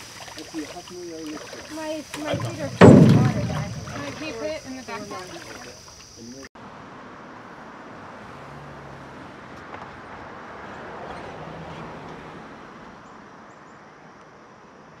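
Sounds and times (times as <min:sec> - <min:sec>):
distant cars passing: 0:00.0 - 0:14.2.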